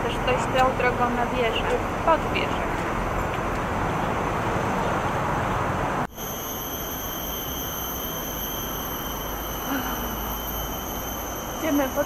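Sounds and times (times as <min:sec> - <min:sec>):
street traffic noise: 0:00.0 - 0:12.0
high-pitched insect drone: 0:06.1 - 0:12.0.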